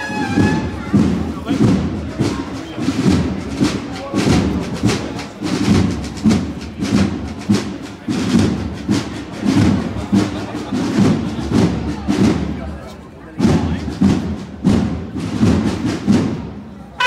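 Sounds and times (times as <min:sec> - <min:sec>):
marching drums beating: 0:00.0 - 0:17.0.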